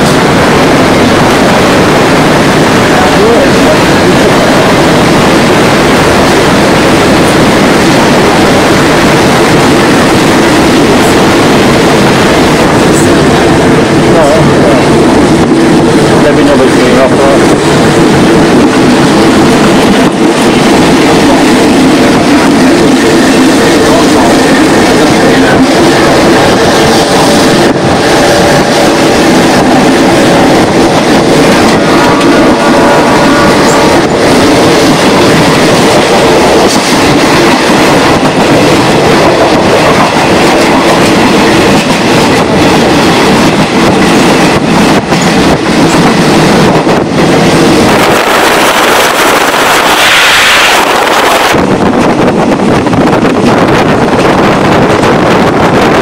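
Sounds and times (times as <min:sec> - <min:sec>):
train wheels rumbling and rattling: 0:00.0 - 0:56.0.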